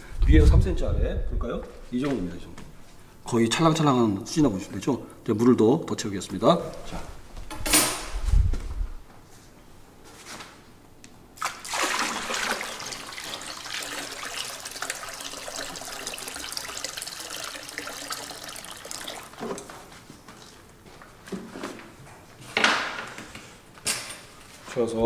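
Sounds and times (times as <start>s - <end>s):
water pouring into a tub: 11.4s - 19.8s.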